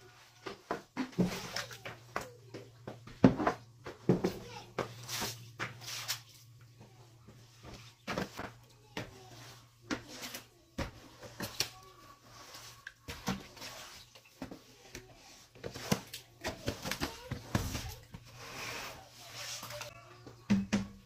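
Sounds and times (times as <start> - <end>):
broom bristles scraping tiles: 3.3 - 6.5, 7.3 - 20.0.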